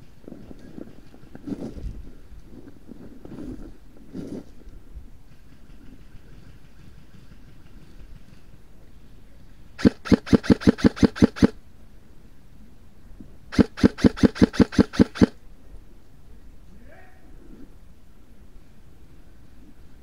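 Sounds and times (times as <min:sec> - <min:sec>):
airsoft rifle firing: 0:09.8 - 0:11.6, 0:13.5 - 0:15.4.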